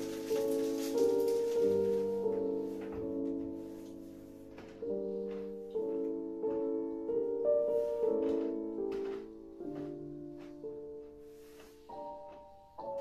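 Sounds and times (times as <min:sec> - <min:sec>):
slow piano chords: 0:00.0 - 0:13.0.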